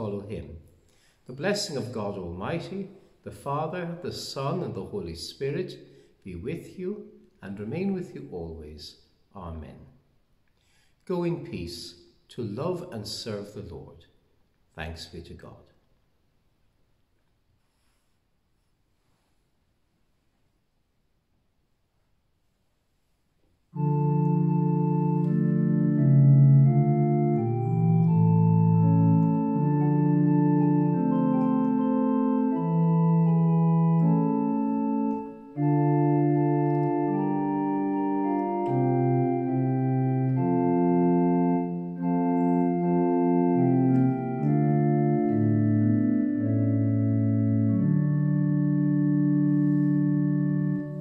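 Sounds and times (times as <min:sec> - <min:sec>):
church organ playing chords: 0:01.3 - 0:05.6, 0:23.7 - 0:51.0.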